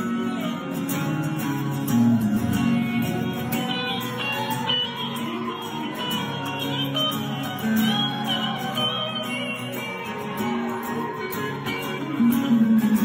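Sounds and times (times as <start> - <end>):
acoustic guitar playing: 0.0 - 13.0.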